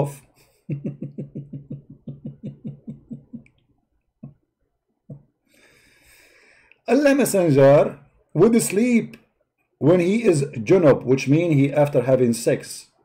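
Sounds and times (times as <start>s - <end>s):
man making pitched vocal pulses: 0.7s - 3.4s.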